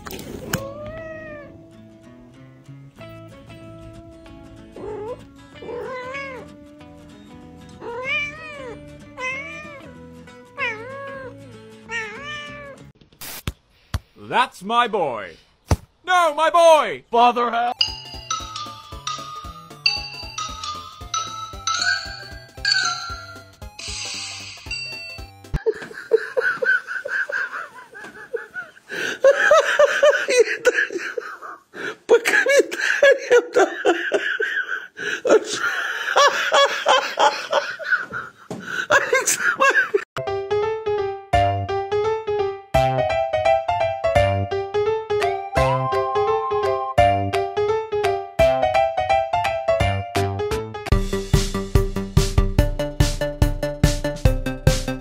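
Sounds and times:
background music: 0.0 - 12.9, 17.6 - 25.7, 40.2 - 55.0
cat meowing: 0.5 - 1.6, 4.8 - 6.6, 7.8 - 12.9
person laughing: 25.6 - 40.1.

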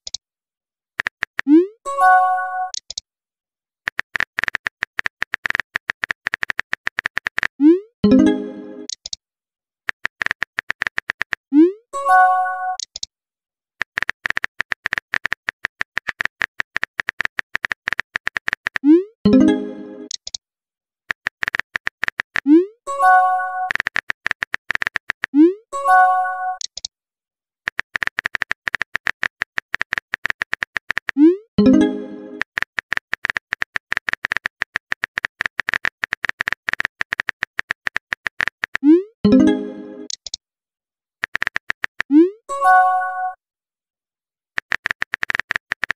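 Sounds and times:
phone keyboard typing clicks: 1.0 - 1.5, 3.9 - 7.6, 9.9 - 11.4, 13.8 - 18.9, 21.1 - 22.5, 23.6 - 25.4, 26.6 - 26.9, 27.7 - 38.8, 41.2 - 42.2, 44.6 - 45.9
notification chime: 8.0 - 8.9, 31.6 - 32.4, 39.3 - 40.1.

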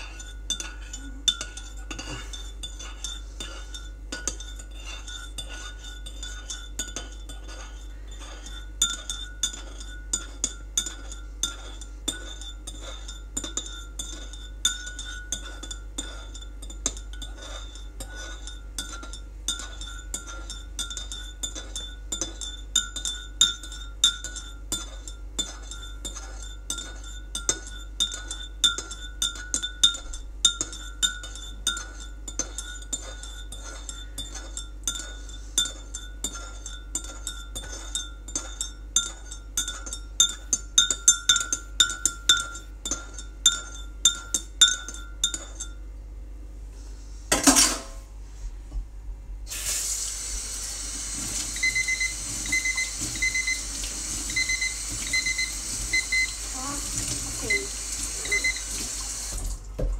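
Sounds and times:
faint high ringing tone: 51.5 - 56.6, 57.4 - 58.8.

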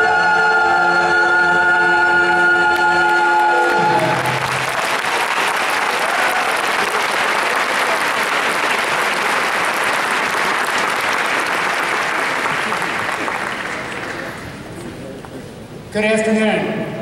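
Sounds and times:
choral singing: 0.0 - 4.5
crowd applauding: 2.7 - 14.8.

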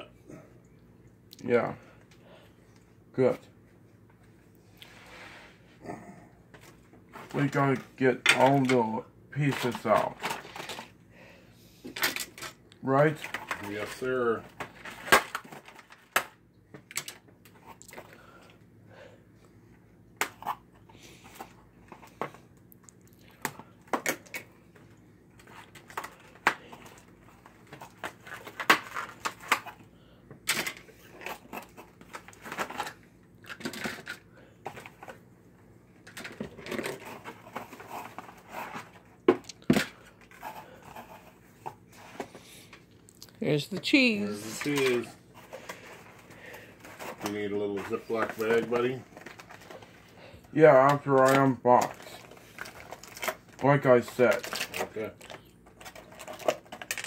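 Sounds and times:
wrapping rustling and crinkling: 12.0 - 18.4, 30.8 - 43.3, 43.9 - 57.0.

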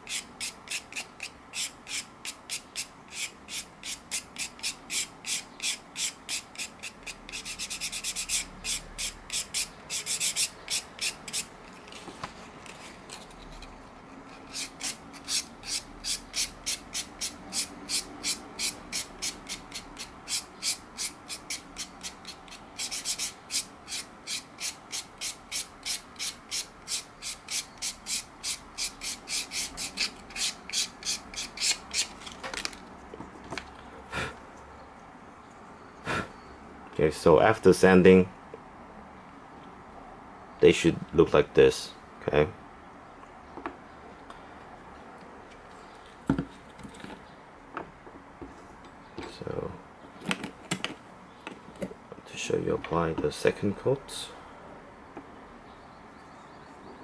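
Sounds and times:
sandpaper rasping on leather: 0.0 - 11.5, 14.5 - 32.1.

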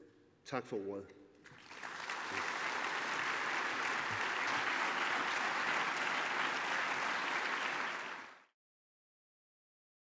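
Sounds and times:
audience applauding: 1.5 - 8.5.

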